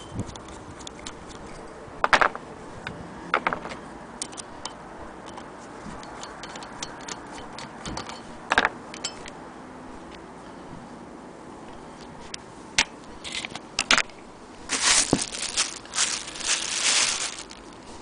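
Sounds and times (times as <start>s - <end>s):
screwdriver metal clicks and clatters: 4.2s - 8.2s.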